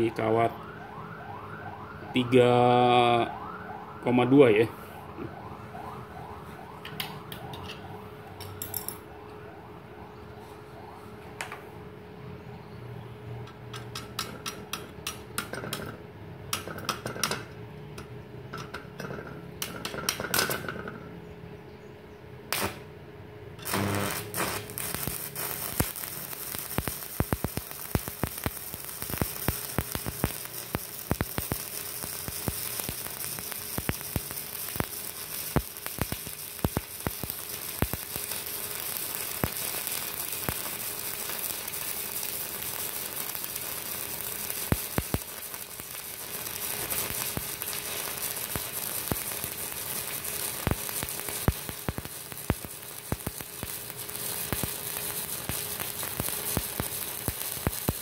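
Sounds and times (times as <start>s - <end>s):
sharp welding pops: 13.6s - 17.5s, 22.5s - 22.9s, 23.6s - 58.0s
welding arc crackling: 22.5s - 22.9s, 23.6s - 58.0s.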